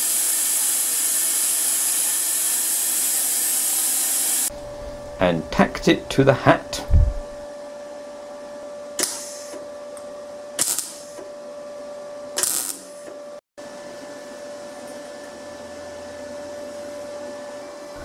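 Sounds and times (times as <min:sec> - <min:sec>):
welding arc bursts: 0:00.0 - 0:04.5, 0:09.0 - 0:09.6, 0:10.6 - 0:11.3, 0:12.4 - 0:13.1
steady welder hum: 0:00.0 - 0:18.0.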